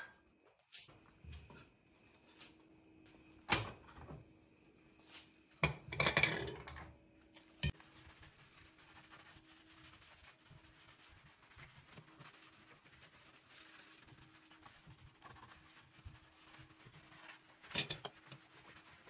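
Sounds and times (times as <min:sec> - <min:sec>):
sponge rubbing on glass: 0:07.7 - 0:19.0.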